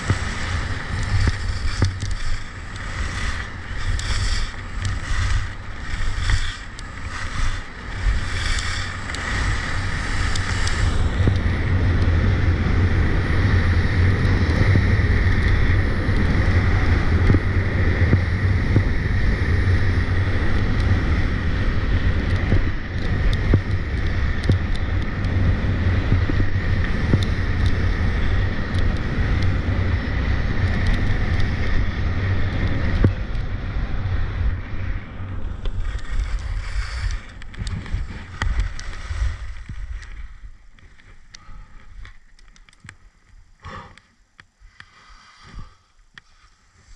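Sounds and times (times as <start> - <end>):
ski edges scraping icy snow: 0.0 - 11.6, 35.6 - 42.3, 44.7 - 46.9
wind rushing over microphone: 0.0 - 43.6.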